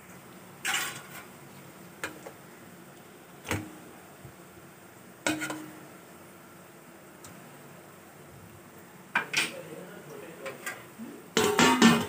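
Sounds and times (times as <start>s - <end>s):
spoon scraping metal pot: 0.6s - 1.3s
spoon knocking on metal pot: 11.4s - 12.0s.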